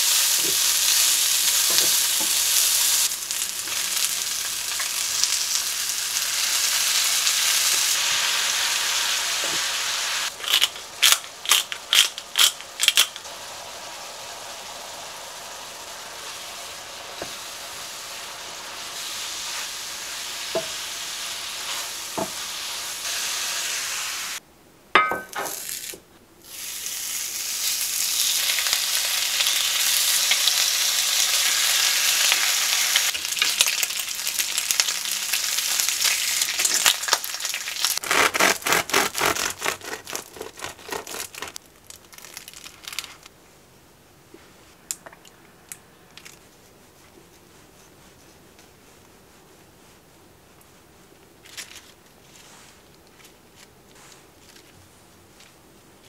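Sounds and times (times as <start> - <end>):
bacon sizzling and crackling: 0.0 - 24.4, 25.2 - 43.3
mushrooms and onion sizzling in pan: 0.0 - 24.4, 25.0 - 38.0.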